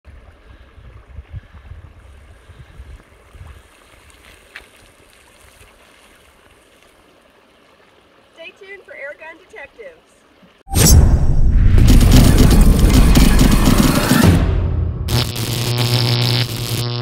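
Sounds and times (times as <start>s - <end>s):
wind on microphone: 0.1s - 3.7s
water running over concrete: 3.0s - 10.6s.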